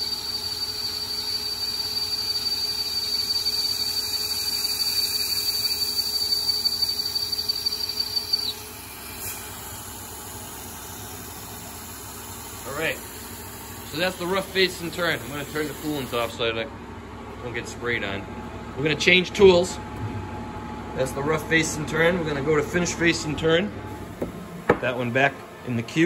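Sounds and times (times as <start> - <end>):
lathe spindle turning: 0.0 - 16.3
lathe cutting whine: 0.0 - 16.5
coolant mist hissing: 8.4 - 16.4.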